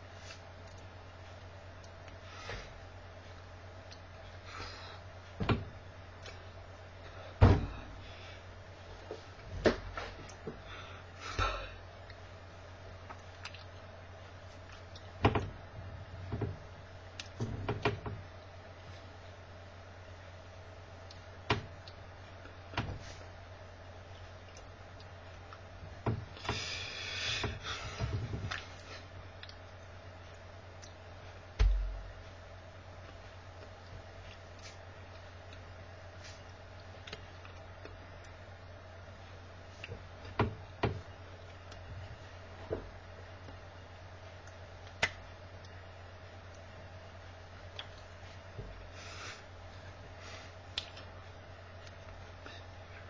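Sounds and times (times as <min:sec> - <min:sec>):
low electrical hum: 0:00.0 - 0:53.0
dull thump: 0:07.4 - 0:07.9, 0:31.6 - 0:32.1.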